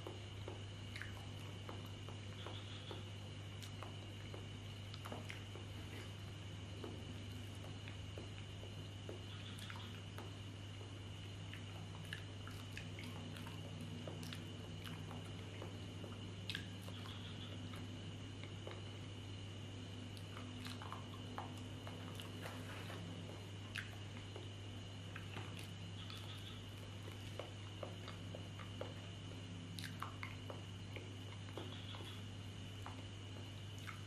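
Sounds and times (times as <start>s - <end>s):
steady low hum: 0.0s - 34.0s
person chewing: 18.4s - 19.0s, 20.1s - 24.5s, 29.8s - 32.2s.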